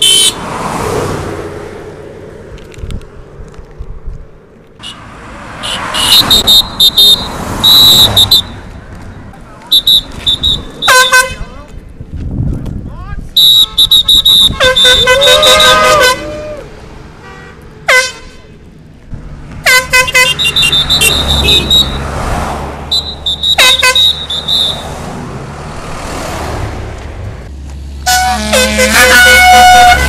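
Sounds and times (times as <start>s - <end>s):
vehicle horns honking: 0.0s - 0.5s, 4.8s - 8.7s, 9.7s - 11.6s, 13.4s - 16.6s, 17.2s - 18.5s, 19.6s - 22.2s, 22.8s - 25.0s, 28.0s - 30.0s
cars and trucks passing: 0.0s - 30.0s.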